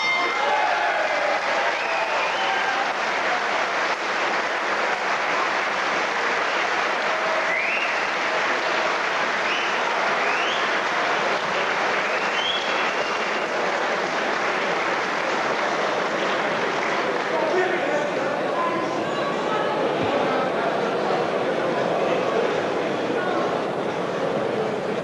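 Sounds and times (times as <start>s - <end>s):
crowd applauding: 0.0s - 18.6s.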